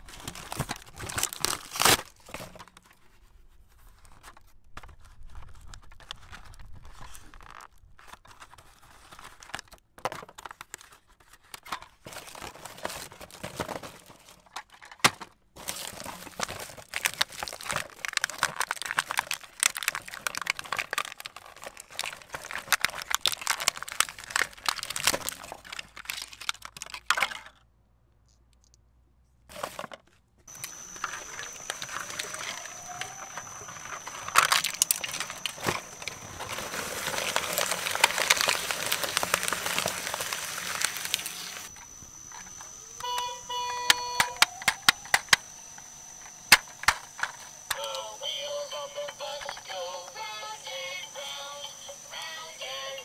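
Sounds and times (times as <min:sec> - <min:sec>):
cardboard tearing: 0:00.0 - 0:02.6, 0:15.6 - 0:26.6, 0:30.5 - 0:42.6
plastic packaging crinkling: 0:00.0 - 0:02.7, 0:03.9 - 0:15.0, 0:15.6 - 0:27.5, 0:30.5 - 0:43.1, 0:43.7 - 0:53.0
faint high whine: 0:30.5 - 0:53.0.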